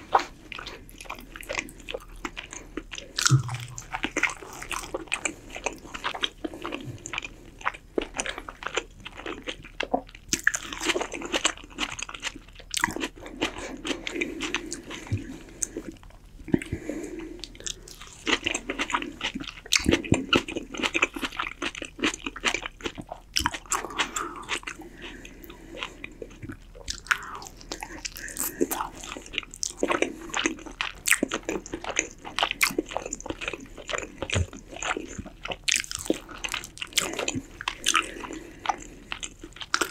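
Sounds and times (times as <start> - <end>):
person chewing: 0.0 - 39.9.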